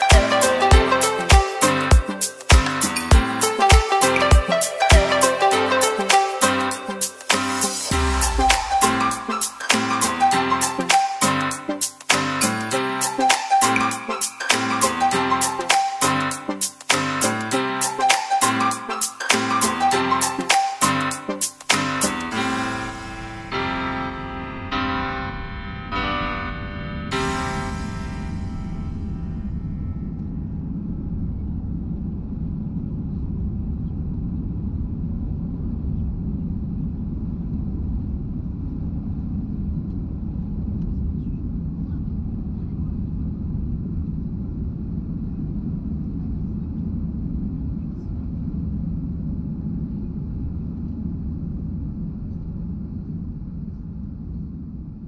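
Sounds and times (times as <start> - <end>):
jet cabin engine rumble: 27.3 - 55.0.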